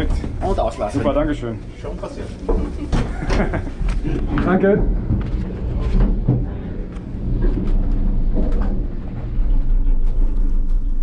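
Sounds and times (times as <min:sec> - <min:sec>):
gondola cabin low rumble: 0:00.0 - 0:11.0
clunks and rattles: 0:02.4 - 0:11.0.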